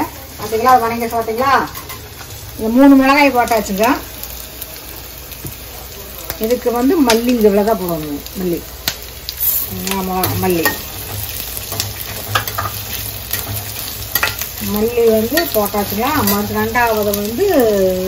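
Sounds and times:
onion sizzling in oil: 0.0 - 18.0
metal spoon clicking against pan: 14.2 - 14.5.

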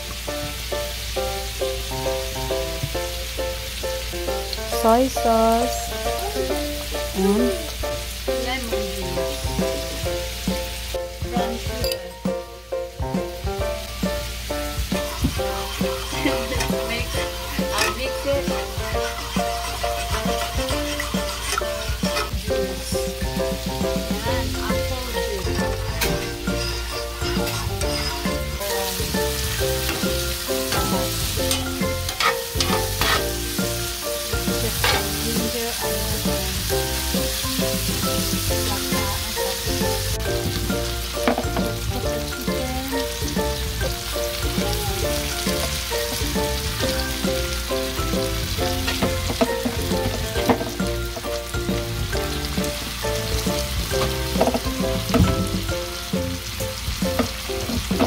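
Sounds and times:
background music: 0.0 - 58.0
chicken sizzling in a skillet: 0.0 - 58.0.

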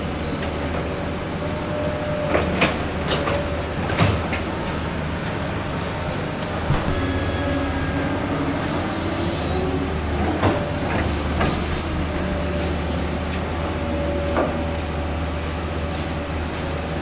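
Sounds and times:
excavator diesel engine hum: 0.0 - 17.0
sharp knocks: 6.6 - 7.1.

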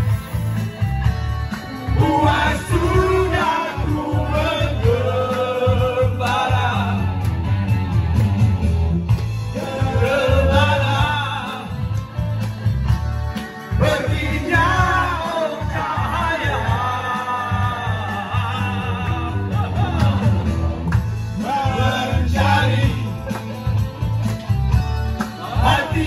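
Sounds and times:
music with steady bass beat: 0.0 - 26.0
men singing into microphones: 1.6 - 7.6, 9.4 - 12.4, 13.6 - 23.8, 25.2 - 26.0.

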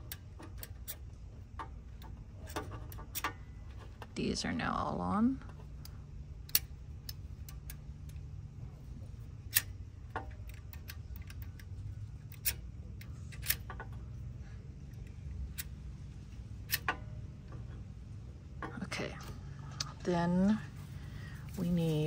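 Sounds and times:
metal parts clicking: 0.0 - 4.1, 5.5 - 8.3, 9.3 - 14.2
steady low hum: 0.0 - 22.0.

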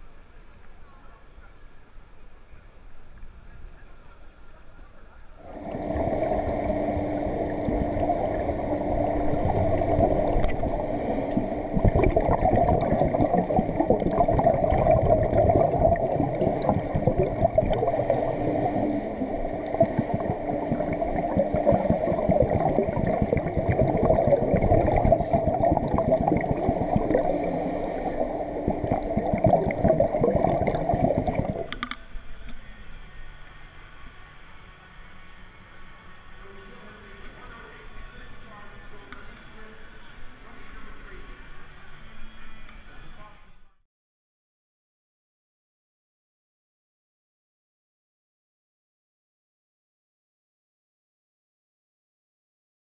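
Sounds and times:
faint low hum: 0.0 - 43.8
muffled underwater rush of water: 3.0 - 34.8
bubbling bursts: 5.4 - 31.9.

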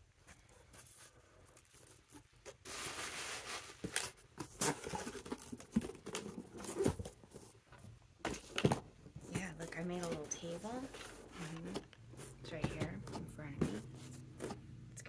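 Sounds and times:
cardboard box scraping rustle: 0.8 - 7.6, 8.3 - 14.6.

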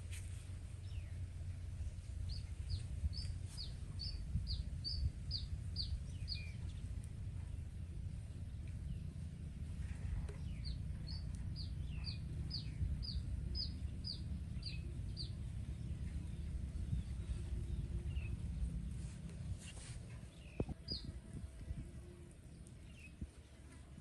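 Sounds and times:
steady low rumble: 0.0 - 24.0
bird chirping: 2.2 - 7.6, 10.3 - 19.0, 20.2 - 21.1, 22.0 - 23.4.

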